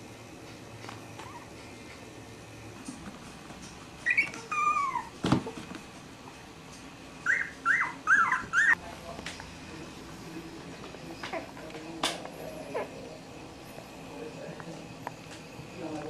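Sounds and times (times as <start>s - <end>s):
puppies whimpering: 4.0s - 5.2s, 7.2s - 8.8s.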